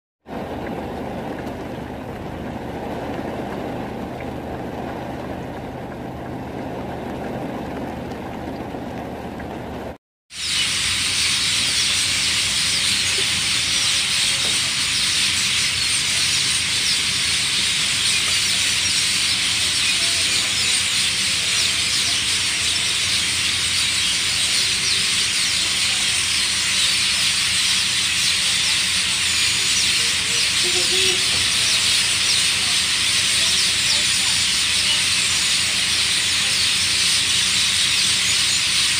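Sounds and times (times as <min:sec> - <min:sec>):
chorus of birds chirping: 0:10.4 - 0:38.9.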